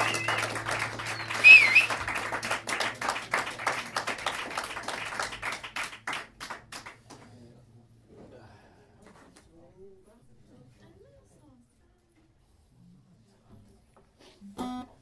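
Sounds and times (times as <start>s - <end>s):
short sharp whistle: 0.0s - 2.1s
audience clapping: 0.0s - 7.4s.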